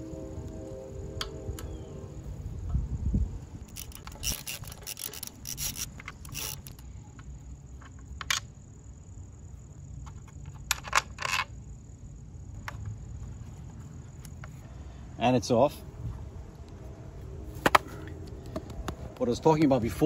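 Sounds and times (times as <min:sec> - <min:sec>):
socket wrench clicking: 0:03.7 - 0:06.8.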